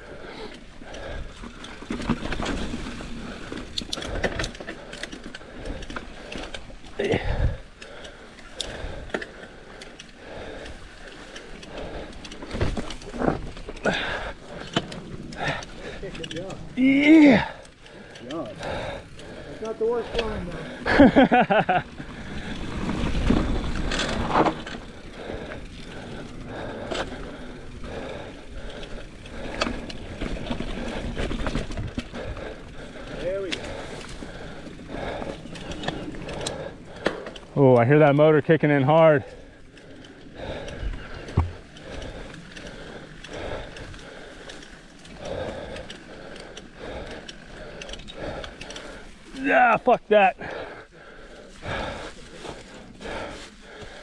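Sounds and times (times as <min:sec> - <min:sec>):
bike chain and frame rattling: 0:00.0 - 0:54.0
low tyre rumble: 0:08.7 - 0:38.6
bike knocks and rattles: 0:12.2 - 0:17.4, 0:22.6 - 0:24.9, 0:41.0 - 0:41.9.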